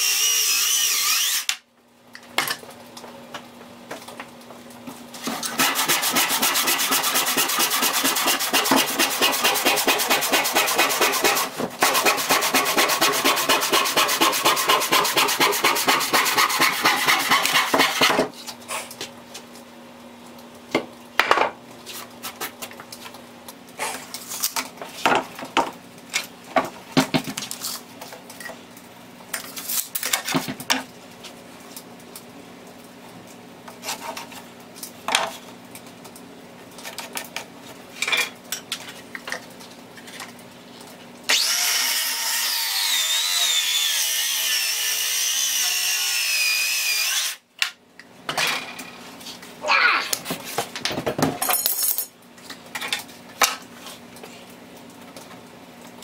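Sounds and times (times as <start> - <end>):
circular saw cutting wood: 0.0 - 1.6, 5.3 - 18.2, 41.3 - 47.4.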